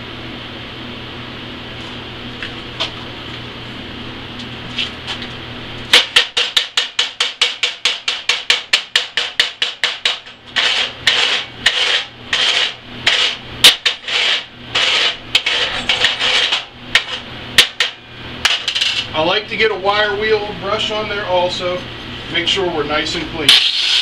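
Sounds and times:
hammer striking steel plate: 5.9s - 11.9s
scraping across weld: 10.0s - 17.2s.

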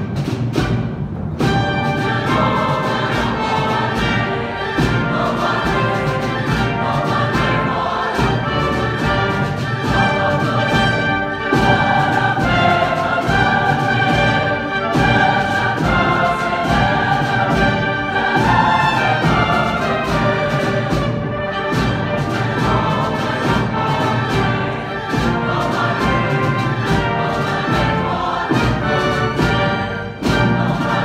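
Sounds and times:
orchestra brass: 0.0s - 31.0s
sharp drum strokes: 0.0s - 31.0s
choir singing: 1.4s - 31.0s.

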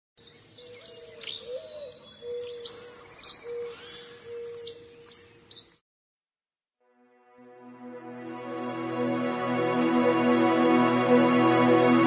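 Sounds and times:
birds chirping: 0.2s - 5.8s.

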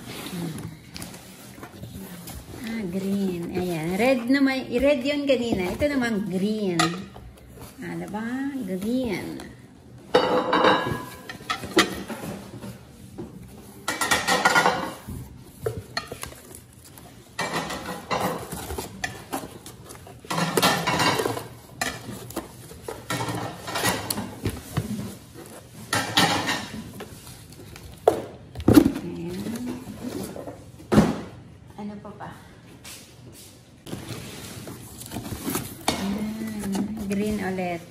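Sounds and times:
cardboard rustling and scraping: 0.0s - 9.6s, 18.2s - 30.7s, 33.3s - 37.9s.

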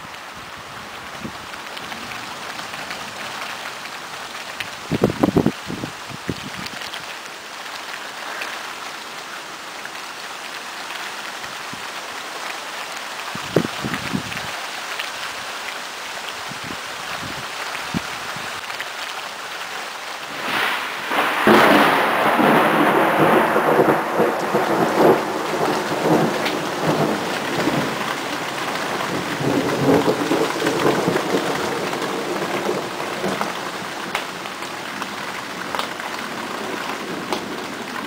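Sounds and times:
steady rain: 0.0s - 38.0s
thunder clap rumbling: 20.2s - 34.5s, 35.6s - 38.0s.

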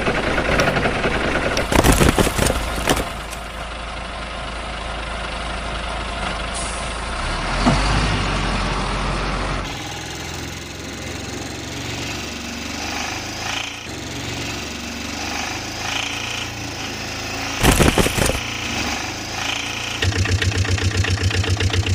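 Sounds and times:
mechanical engine rattle: 0.0s - 4.2s, 15.2s - 21.9s.

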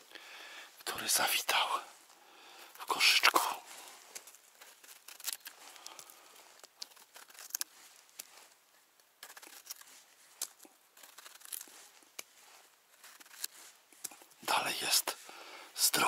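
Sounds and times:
knife scraping mushroom stem: 4.0s - 8.6s, 9.2s - 14.4s.

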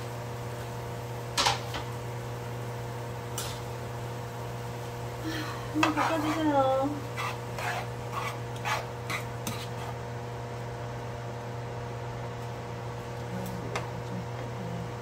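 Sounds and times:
steady low hum: 0.0s - 15.0s
spatula scraping frying pan: 5.8s - 10.1s.

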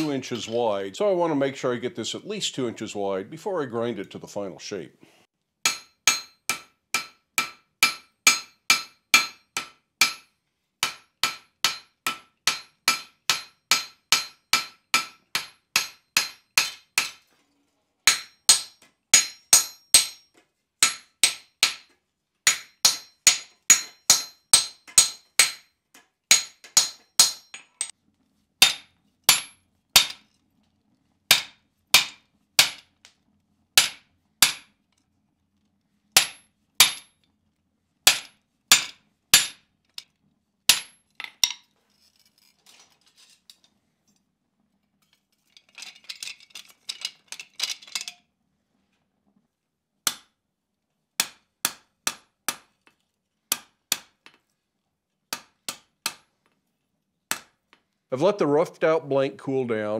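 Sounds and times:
hammer ringing on anvil: 5.7s - 10.2s, 18.1s - 20.2s, 22.5s - 25.6s, 26.3s - 27.9s.

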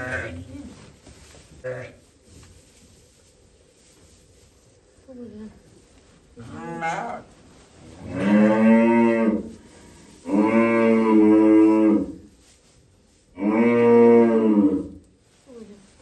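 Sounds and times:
cattle mooing: 6.4s - 7.3s, 8.1s - 9.4s.

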